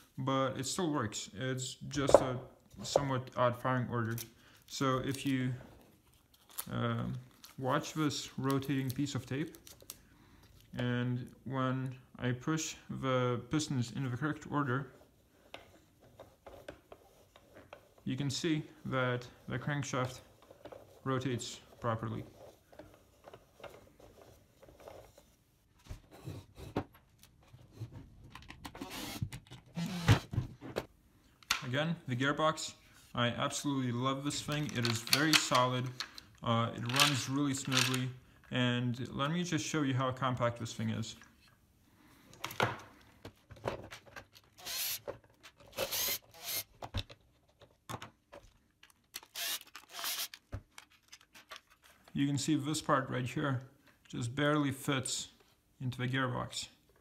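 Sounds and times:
cordless drill whirring: 0:28.8 - 0:30.3, 0:44.6 - 0:45.0, 0:45.7 - 0:46.7, 0:49.2 - 0:50.4
wooden parts clicking and knocking: 0:34.4 - 0:36.2, 0:36.8 - 0:38.1.

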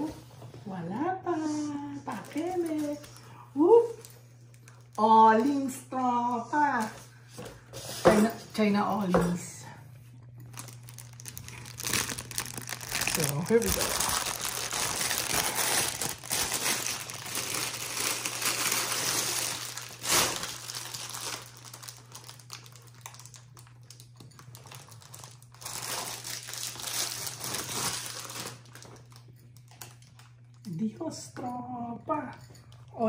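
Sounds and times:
steady low hum: 0:00.0 - 0:33.0
plastic bag crinkling: 0:02.0 - 0:05.7, 0:10.4 - 0:30.6.

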